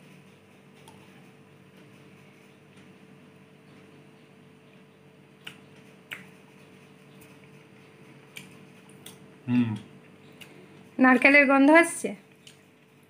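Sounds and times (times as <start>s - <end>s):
faint steady hum: 0.0s - 13.0s
chewing clicks: 5.4s - 10.6s, 12.3s - 13.0s.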